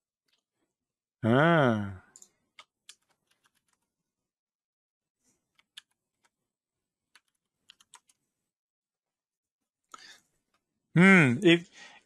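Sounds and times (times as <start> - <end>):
computer keyboard typing: 2.2 - 3.9, 7.1 - 8.2.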